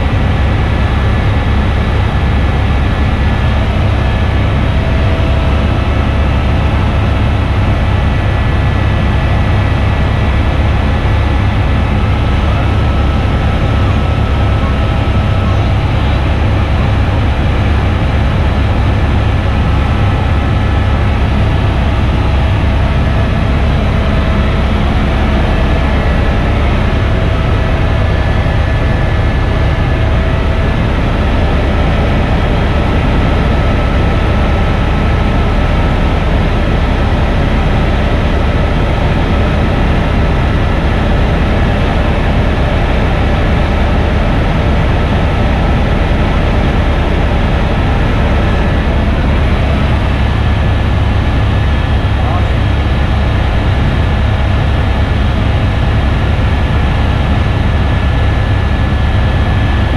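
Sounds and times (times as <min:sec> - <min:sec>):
faint steady whining tones: 0:00.0 - 0:59.9
helicopter rotor and engine drone: 0:00.0 - 0:59.9.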